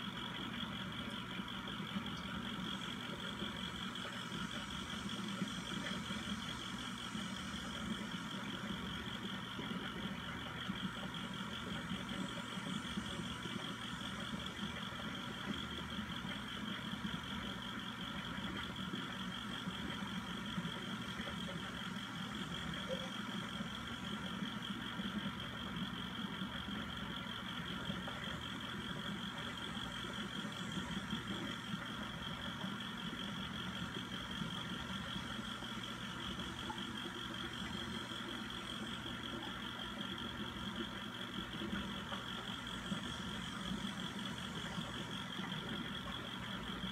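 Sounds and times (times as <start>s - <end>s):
low mechanical hum: 0.0s - 46.9s
pump whirring: 0.0s - 46.9s.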